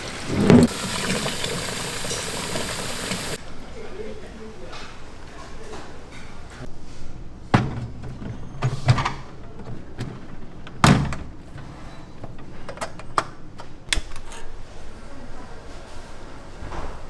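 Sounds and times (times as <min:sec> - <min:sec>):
metal pot clanking: 0:00.0 - 0:03.4.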